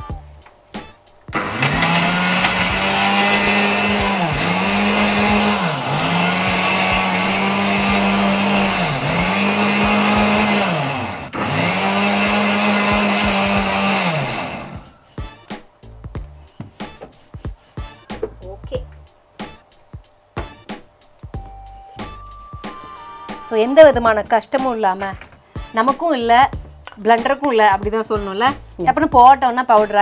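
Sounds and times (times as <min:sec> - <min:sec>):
mixer grinder motor whining: 0:01.3 - 0:15.5.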